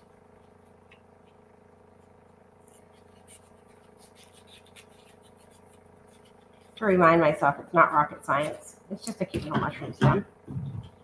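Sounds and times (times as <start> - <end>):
scissors cutting paper: 2.6 - 6.9
low hum: 9.5 - 11.0.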